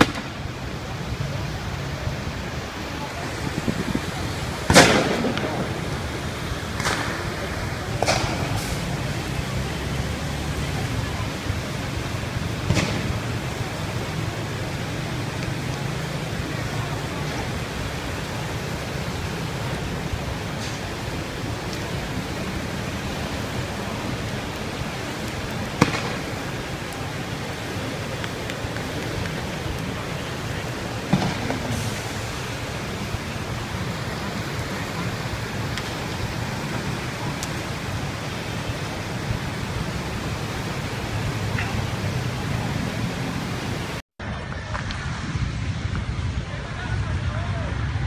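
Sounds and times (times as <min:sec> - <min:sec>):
sharp bangs: 0:00.0 - 0:00.4, 0:04.6 - 0:05.9, 0:12.6 - 0:13.3, 0:25.8 - 0:26.4
hiss-like outdoor din: 0:00.0 - 0:48.0.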